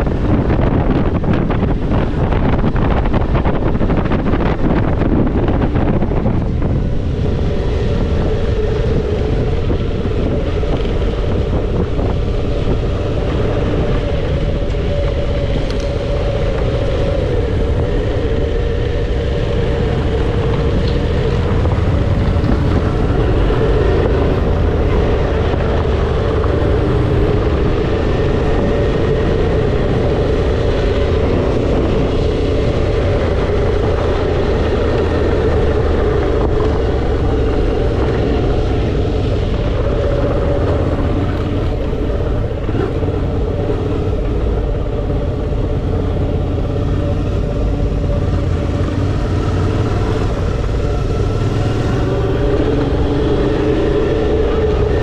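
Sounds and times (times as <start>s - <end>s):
motorcycle engine running: 0.0s - 55.0s
wind and tyre noise: 0.0s - 55.0s.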